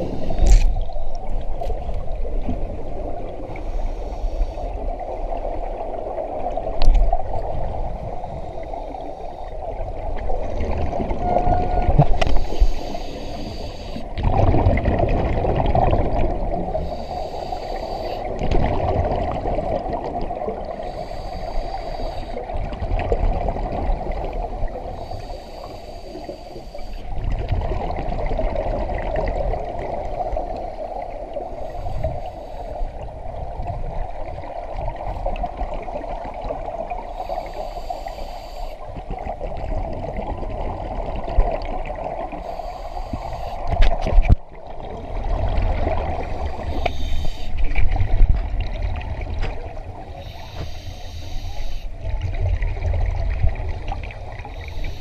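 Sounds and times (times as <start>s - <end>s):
diver breathing through regulator: 0.0s - 0.9s, 3.6s - 4.8s, 12.1s - 14.1s, 16.7s - 18.4s, 20.8s - 22.5s, 24.3s - 27.1s, 30.3s - 33.0s, 37.1s - 38.9s, 42.4s - 43.8s, 46.5s - 47.7s, 50.0s - 51.9s, 54.5s - 55.0s
bubbling exhales: 11.9s - 17.6s.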